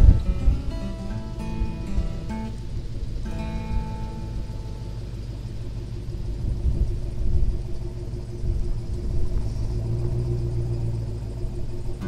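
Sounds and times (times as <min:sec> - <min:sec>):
engine running low rumble: 0:00.0 - 0:12.0.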